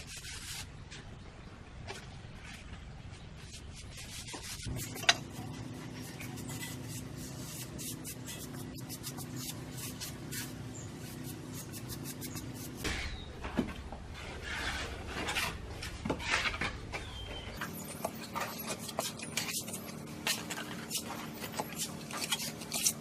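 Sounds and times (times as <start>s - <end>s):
hand tool scraping cement: 17.6s - 23.0s.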